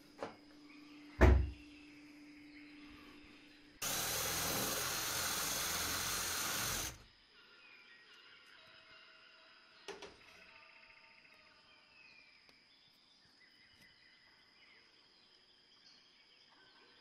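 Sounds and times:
power drill running: 3.8 - 7.0.

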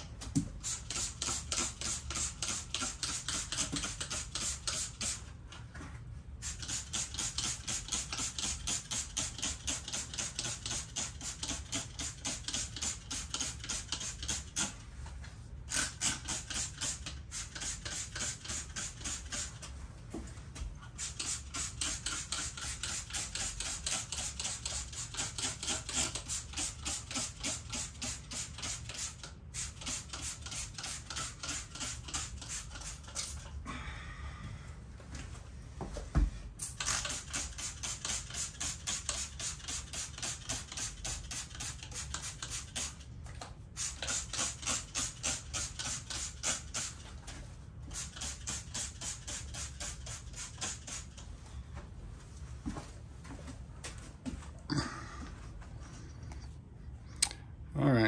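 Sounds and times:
spray bottle spritzing: 0.6 - 5.2, 6.4 - 14.8, 15.7 - 19.6, 21.0 - 33.5, 36.6 - 43.0, 43.8 - 47.1, 47.9 - 51.2.

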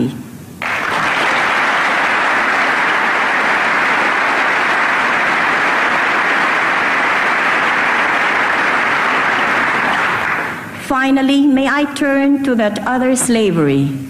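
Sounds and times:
large audience applauding: 0.6 - 10.8.

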